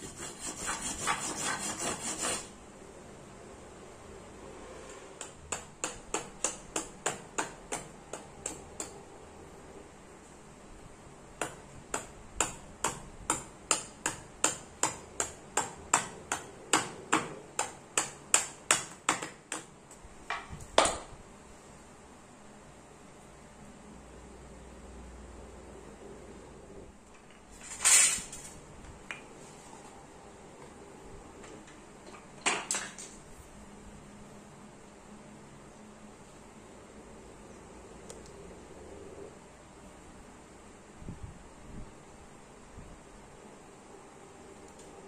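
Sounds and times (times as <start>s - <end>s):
knife scraping wood: 0.0s - 2.5s.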